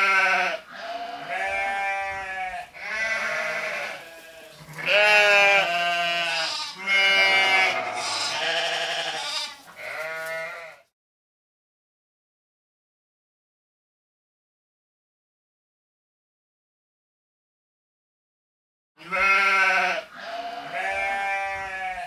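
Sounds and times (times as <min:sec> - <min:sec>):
goats bleating: 0:00.0 - 0:10.9, 0:19.0 - 0:22.0.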